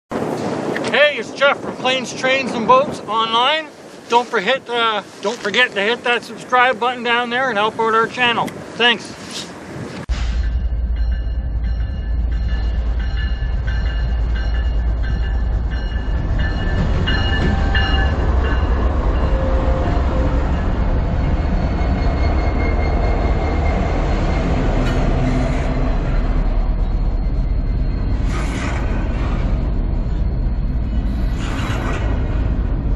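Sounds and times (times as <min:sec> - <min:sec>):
freight train rumbling past: 0:00.1 - 0:09.0, 0:09.6 - 0:32.9
thin high ringing tones: 0:10.2 - 0:19.6, 0:26.1 - 0:28.3.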